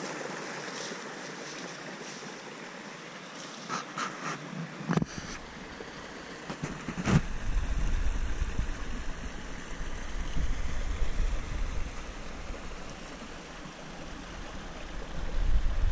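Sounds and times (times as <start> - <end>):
steady rushing hiss: 0.0 - 15.9
wind buffeting microphone: 6.8 - 12.8, 14.8 - 15.9.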